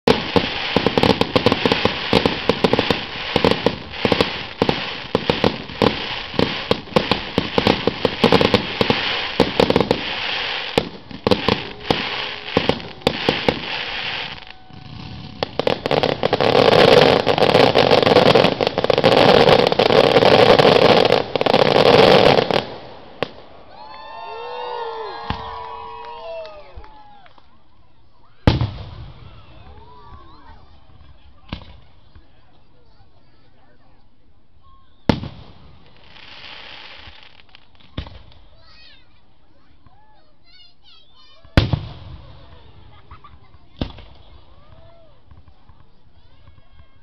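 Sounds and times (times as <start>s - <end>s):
fireworks bangs: 0.0s - 23.7s, 28.4s - 32.3s, 35.1s - 39.0s, 41.2s - 47.0s.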